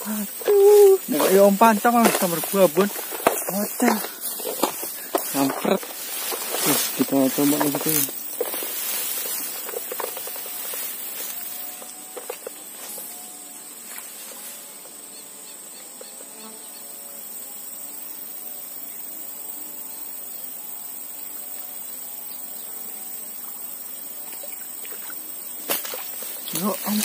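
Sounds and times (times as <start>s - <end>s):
faint wavering animal calls: 0.0s - 1.4s
insects droning: 0.0s - 27.0s.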